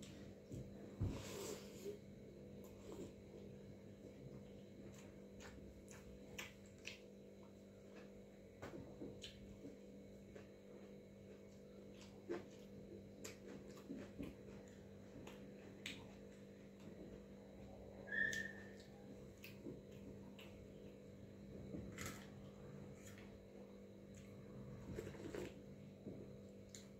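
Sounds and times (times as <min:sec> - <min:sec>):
chewing: 0:04.1 - 0:08.2, 0:09.1 - 0:17.3, 0:18.3 - 0:21.2.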